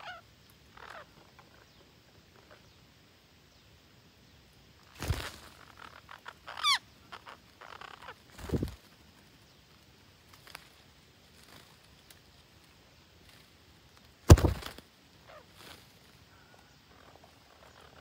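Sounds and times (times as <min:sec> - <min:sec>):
parrots squawking: 0:00.0 - 0:00.2, 0:00.8 - 0:01.6, 0:05.6 - 0:08.2
rustling: 0:04.8 - 0:06.0.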